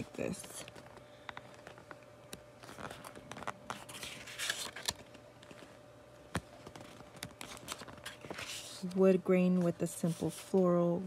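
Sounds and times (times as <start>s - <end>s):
paper pages turning: 2.6s - 9.0s, 10.0s - 10.8s.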